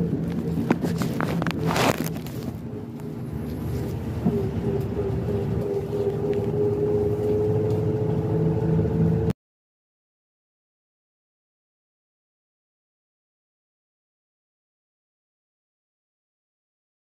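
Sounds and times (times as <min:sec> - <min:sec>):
bus engine and road rumble: 0:00.0 - 0:09.4.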